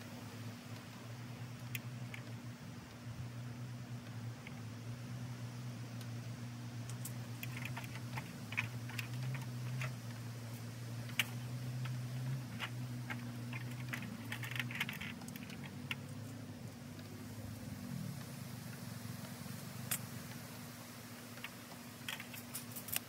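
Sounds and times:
steady low hum: 0.0s - 23.0s
wooden pieces clicking and knocking: 6.9s - 10.2s, 11.0s - 16.2s.

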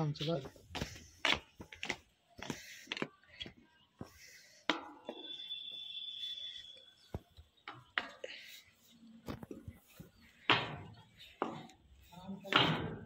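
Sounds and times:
footsteps on steel stairs: 0.2s - 5.8s, 9.3s - 13.0s.

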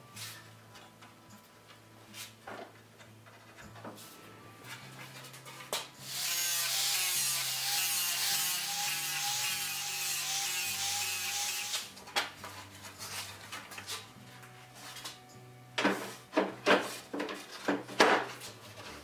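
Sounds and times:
angle grinder grinding metal: 6.0s - 11.9s
sharp knocks and clatters: 15.8s - 18.4s.

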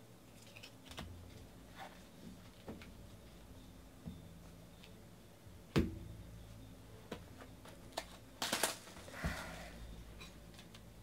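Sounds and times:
plastic shrink wrap tearing: 8.0s - 9.1s.

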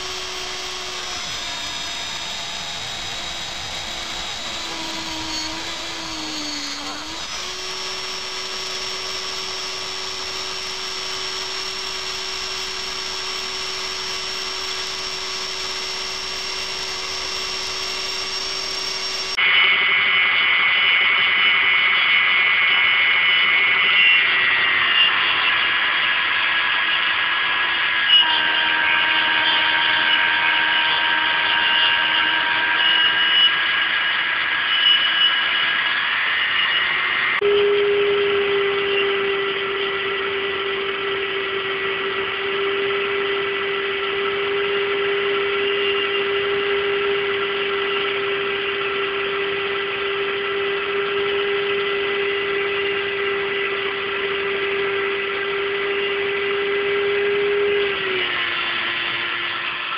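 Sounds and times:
mini lathe whining: 0.0s - 19.4s.

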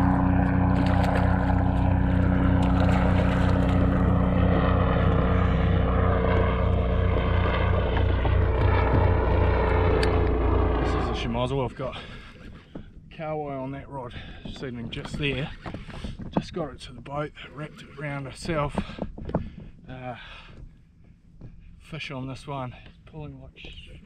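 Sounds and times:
helicopter flying over: 0.0s - 17.0s.

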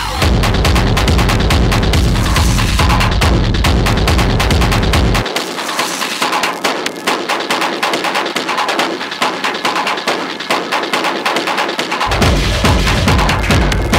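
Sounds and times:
industrial techno music: 0.0s - 13.9s.

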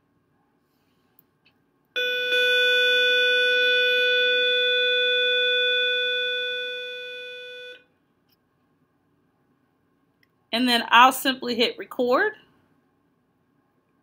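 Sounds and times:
steady electronic tone: 2.0s - 7.8s.

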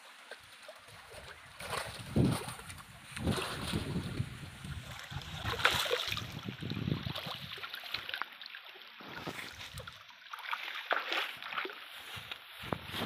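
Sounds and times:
water sloshing and splashing: 0.0s - 13.0s
wind rumble on microphone: 1.1s - 7.6s, 12.1s - 13.0s.

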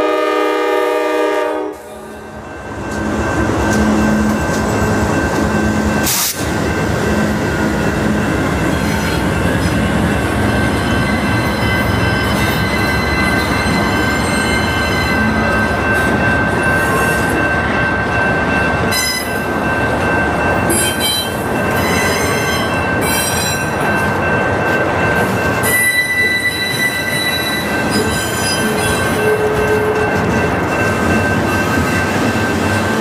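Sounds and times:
train wheels rumbling on rail: 0.0s - 33.0s
high-pitched wheel squeal: 25.6s - 30.0s.

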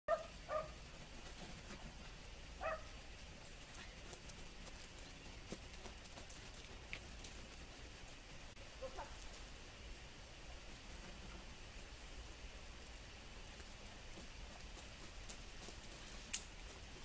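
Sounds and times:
small dog barking: 0.1s - 0.8s, 2.6s - 3.0s, 8.8s - 9.2s
running feet on wood chips: 13.3s - 17.0s.

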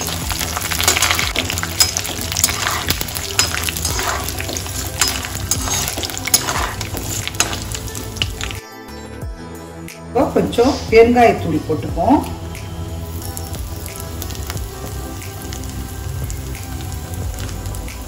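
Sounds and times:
steel ladle scraping pan: 0.0s - 8.5s
crackles and pops: 0.0s - 8.6s
spices sizzling in hot oil: 0.0s - 8.6s, 12.0s - 18.0s.

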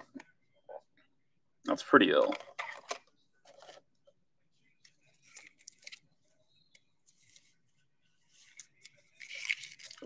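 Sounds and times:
cards rustling and clicking: 8.3s - 10.0s.

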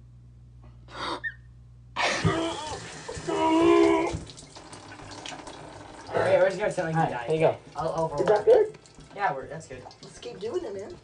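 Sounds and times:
faint steady hum: 0.0s - 11.0s
person crying out: 2.0s - 4.2s
water running in bathtub: 2.0s - 11.0s.

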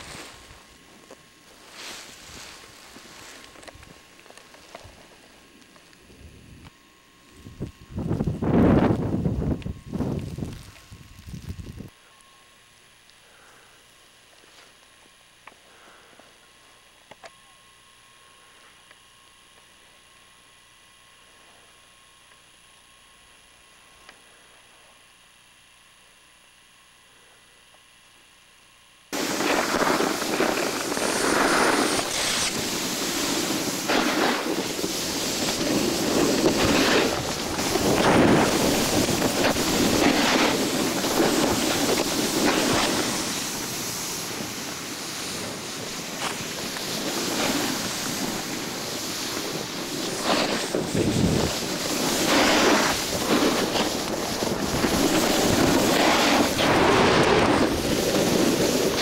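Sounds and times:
skis hissing on snow: 0.0s - 5.5s, 29.1s - 59.0s
wind rushing over microphone: 7.4s - 11.9s, 29.2s - 59.0s.

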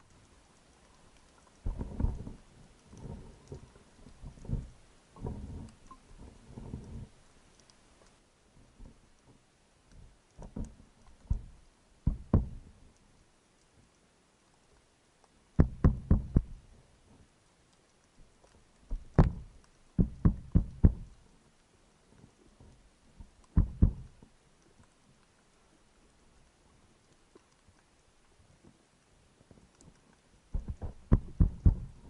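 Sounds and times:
sharp taps on rock underwater: 9.9s - 12.7s, 15.6s - 16.6s, 18.9s - 21.2s, 23.4s - 24.2s, 30.5s - 32.0s.

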